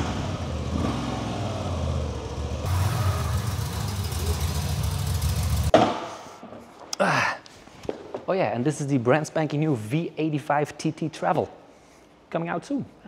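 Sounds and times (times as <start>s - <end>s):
motorcycle engine at low revs: 0.0s - 5.7s.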